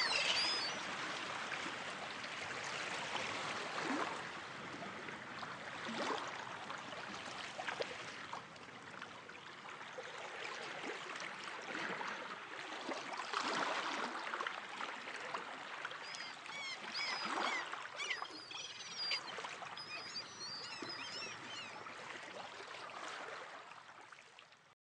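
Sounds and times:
short high bird calls: 0:00.0 - 0:00.8, 0:16.0 - 0:21.8
water lapping and splashing: 0:00.0 - 0:24.7.

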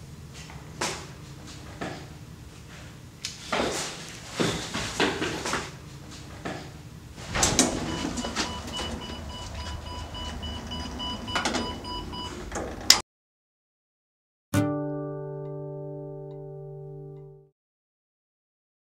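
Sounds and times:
knocks and footsteps: 0:00.3 - 0:13.0
metal swing door pushed open: 0:07.2 - 0:11.8
metal lift door slamming: 0:07.2 - 0:13.0.

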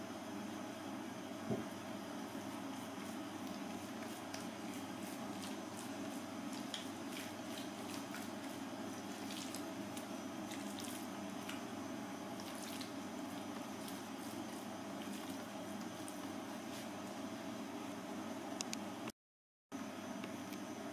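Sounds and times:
hands rubbing raw meat: 0:02.5 - 0:11.7.

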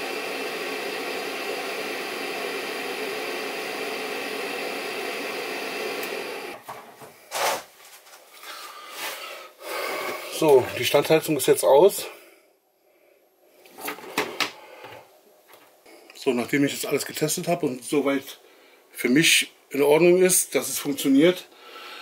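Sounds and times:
heater blower fan running: 0:00.0 - 0:06.7.

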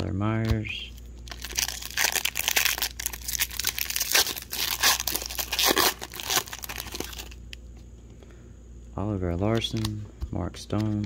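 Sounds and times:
foil wrapper tearing and crinkling: 0:01.3 - 0:07.4.

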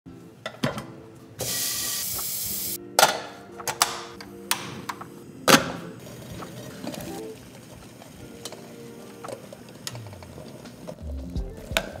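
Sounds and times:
soft background music: 0:00.1 - 0:12.0
gas hissing: 0:01.4 - 0:02.8.

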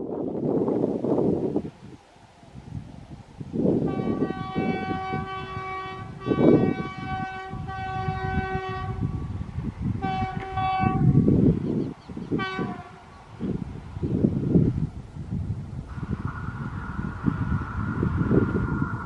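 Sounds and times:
train rumble: 0:00.0 - 0:19.0
locomotive air horn blasts: 0:03.9 - 0:09.1, 0:10.0 - 0:11.3, 0:12.4 - 0:13.1.

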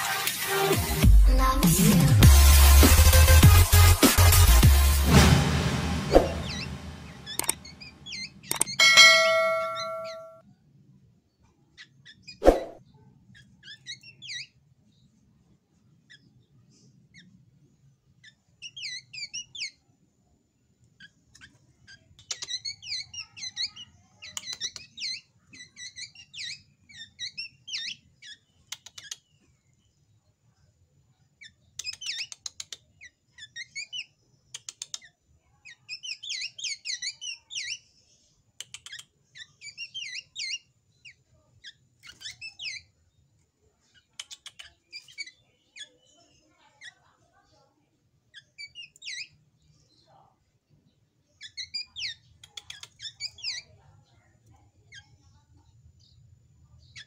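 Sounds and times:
bird chirping and whistling: 0:06.4 - 0:10.3
sharp clicks: 0:07.3 - 0:07.6, 0:08.5 - 0:08.8, 0:38.6 - 0:39.1, 0:44.2 - 0:44.7, 0:52.4 - 0:53.0.

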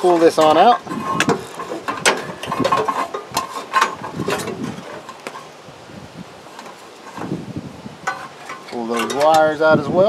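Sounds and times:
metal panel clicks and rattles: 0:00.0 - 0:05.5, 0:08.0 - 0:09.6.

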